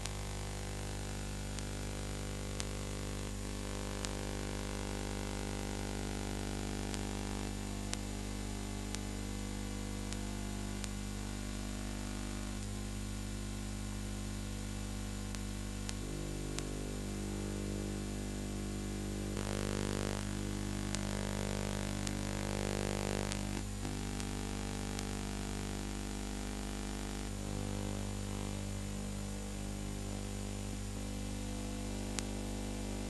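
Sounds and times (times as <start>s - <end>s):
film hum and hiss: 0.0s - 33.0s
faint clicks: 15.3s - 16.7s.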